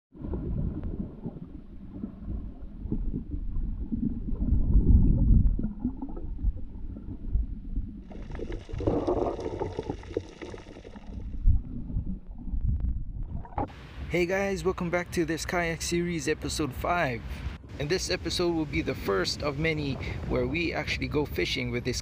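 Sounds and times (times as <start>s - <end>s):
muffled underwater rumble and gurgling: 0.2s - 13.7s.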